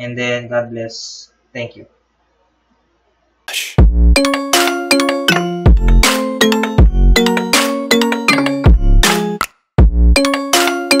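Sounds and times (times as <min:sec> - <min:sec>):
electronic jingle music: 0:04.0 - 0:09.4, 0:10.1 - 0:11.0.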